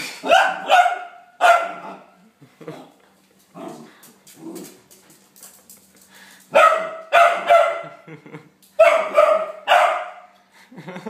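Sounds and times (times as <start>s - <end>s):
small dog barking: 0.2s - 2.1s, 6.5s - 8.0s, 8.8s - 10.3s.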